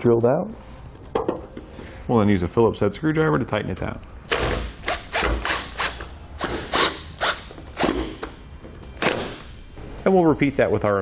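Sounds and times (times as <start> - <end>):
cordless drill driving screws: 4.3 - 8.0.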